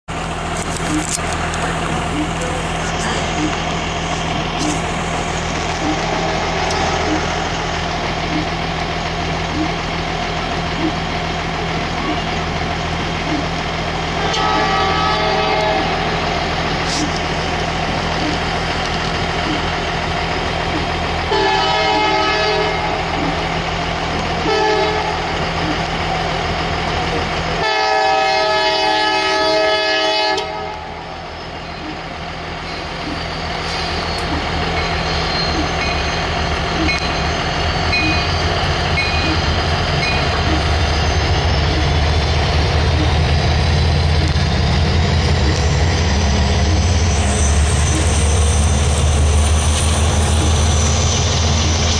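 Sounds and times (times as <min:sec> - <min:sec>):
diesel engine rumble: 0:00.1 - 0:51.9
high whine: 0:00.1 - 0:51.9
locomotive horn blasts: 0:05.6 - 0:07.8, 0:14.1 - 0:17.2, 0:21.2 - 0:23.4, 0:24.4 - 0:25.4, 0:27.6 - 0:31.1.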